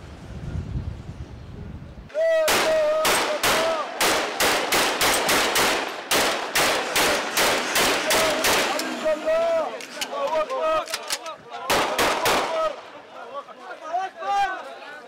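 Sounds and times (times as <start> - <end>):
wind on microphone: 0.0 - 3.0
person shouting: 2.1 - 3.9
rifle gunfire: 2.5 - 8.8, 11.7 - 12.8.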